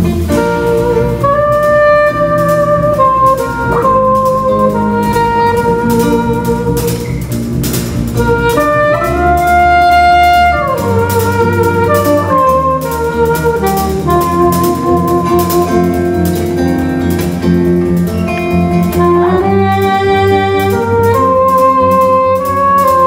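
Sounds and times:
bass guitar: 0.0 - 23.0
drum kit: 0.0 - 23.0
electric guitar: 0.0 - 23.0
soprano saxophone melody: 0.0 - 23.0.

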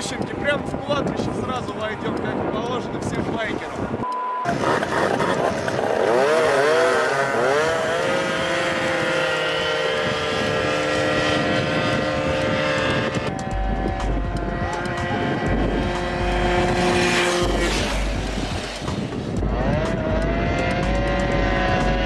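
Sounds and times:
scooter engines at full throttle: 0.0 - 22.0
wind rumble on microphone: 0.0 - 22.0.

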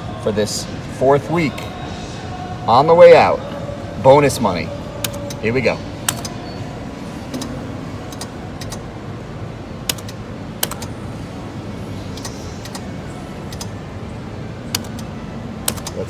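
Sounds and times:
casino background hum: 0.0 - 16.0
slot machine clicks: 9.8 - 10.9, 14.7 - 16.0.

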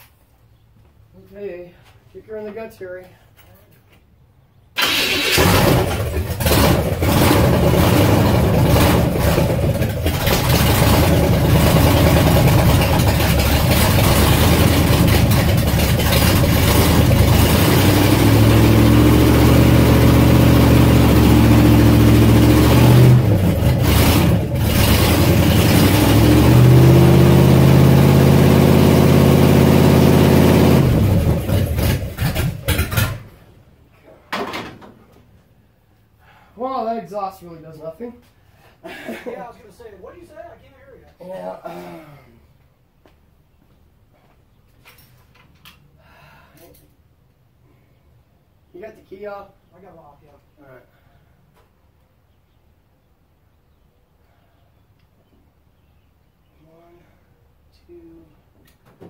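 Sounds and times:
loud unmuffled car engine revving: 5.4 - 33.1.

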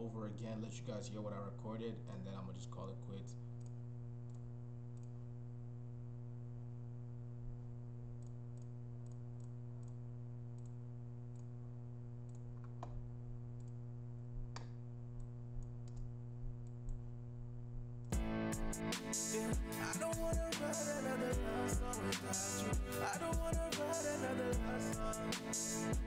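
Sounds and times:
low electrical hum: 0.0 - 18.7
computer mouse clicks: 3.6 - 5.2, 7.6 - 11.6, 12.2 - 18.1.

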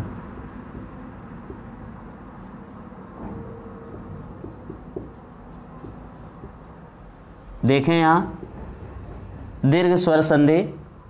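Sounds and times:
marker writing on whiteboard: 0.0 - 10.3
cricket chirping: 0.0 - 11.0.

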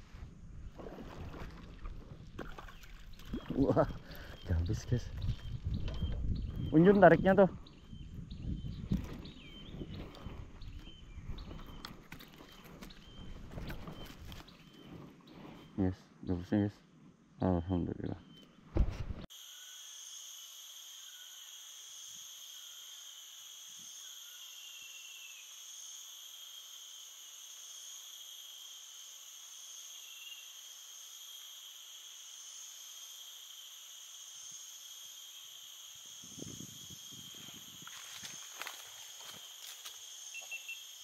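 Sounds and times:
insects shrilling: 19.4 - 41.0.

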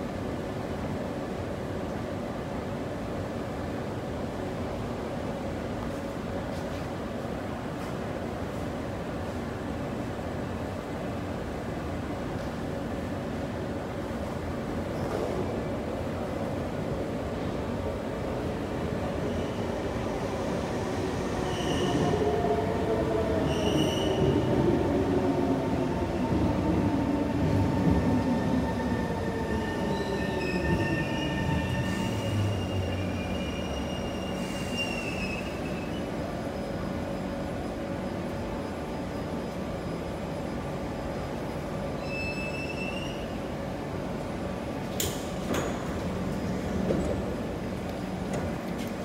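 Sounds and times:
train wheels squealing: 21.2 - 22.4, 23.3 - 24.4, 28.8 - 36.8, 42.0 - 43.5.

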